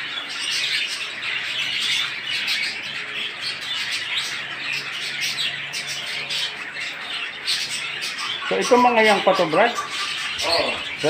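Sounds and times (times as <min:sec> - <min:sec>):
budgerigars chattering: 0:00.0 - 0:11.0.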